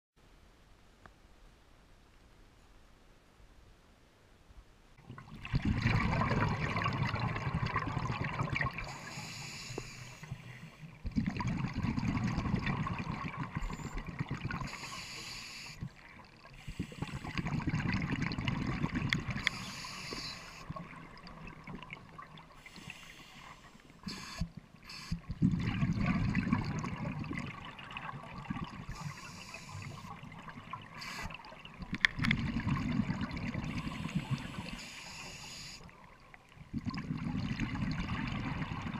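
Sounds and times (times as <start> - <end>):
exhaled bubbles underwater: 5.0 - 38.9
regulator inhale hiss: 8.9 - 11.0, 14.6 - 15.9, 16.6 - 17.5, 19.4 - 20.7, 22.6 - 25.3, 28.9 - 30.2, 31.0 - 31.5, 33.7 - 35.9.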